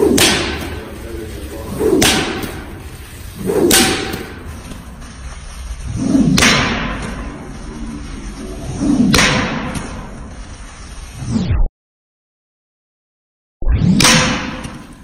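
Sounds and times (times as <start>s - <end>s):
whip cracking: 0.0s - 4.9s, 5.8s - 7.4s, 8.7s - 10.2s, 13.8s - 15.0s.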